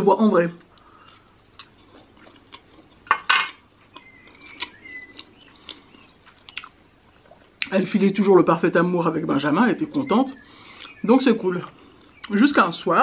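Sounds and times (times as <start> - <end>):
faint eating clicks: 0.6 - 3.1, 3.9 - 7.7
chopsticks clattering on metal platter: 3.1 - 3.6.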